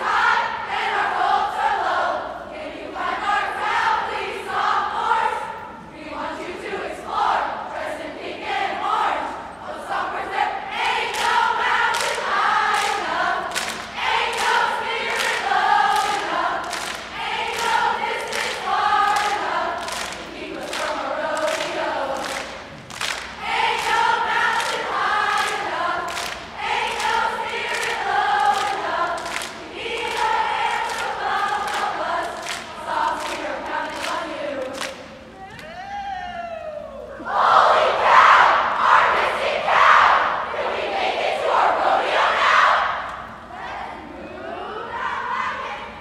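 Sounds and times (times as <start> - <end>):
crowd chanting in unison: 0.0 - 35.0, 37.2 - 46.0
steady beat of sharp strokes: 9.8 - 35.4.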